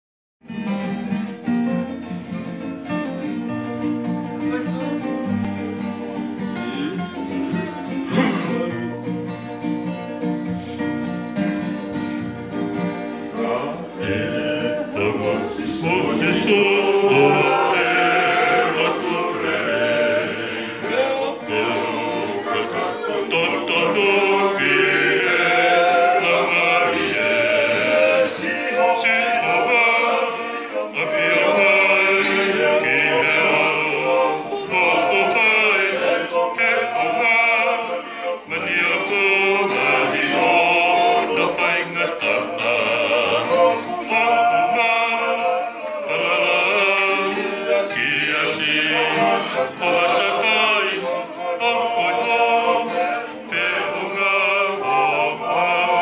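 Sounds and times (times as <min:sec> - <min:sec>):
acoustic guitars strumming: 0:00.4 - 0:56.0
ukulele strumming: 0:00.4 - 0:56.0
men singing: 0:07.9 - 0:09.0, 0:13.2 - 0:56.0.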